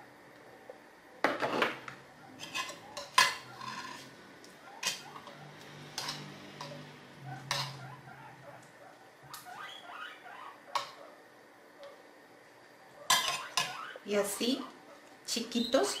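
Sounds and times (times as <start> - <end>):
utensils clinking against dishes: 2.4 - 4.1, 4.8 - 7.8, 13.1 - 13.8.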